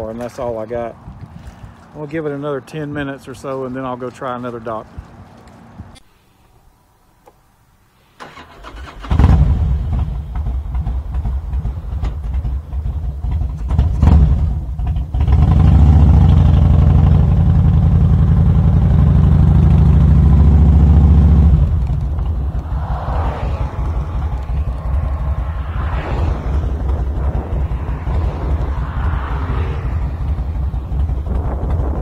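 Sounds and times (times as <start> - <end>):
motorcycle electric starter cranking: 8.2 - 9.2
motorcycle engine running: 9.3 - 32.0.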